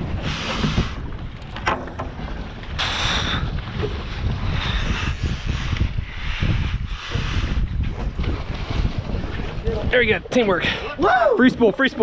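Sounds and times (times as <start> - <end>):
wind buffeting the microphone: 0.0 - 12.0
sea water splashing and rushing: 7.0 - 11.0.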